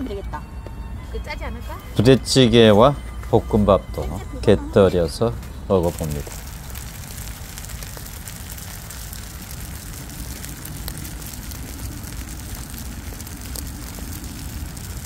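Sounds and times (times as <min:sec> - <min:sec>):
wood fire crackling: 0:01.8 - 0:15.0
low rumble and hiss: 0:05.3 - 0:15.0.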